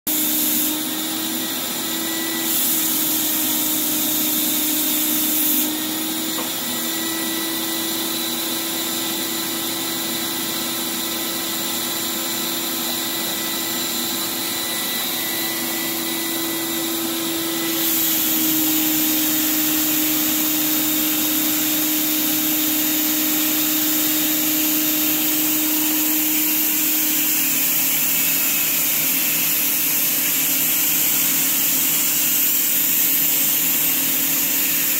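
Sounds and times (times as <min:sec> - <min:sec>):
spray gun hissing: 0:00.1 - 0:01.2, 0:02.4 - 0:05.7, 0:17.7 - 0:34.9
paint spray rig humming: 0:00.1 - 0:05.7, 0:17.7 - 0:34.9.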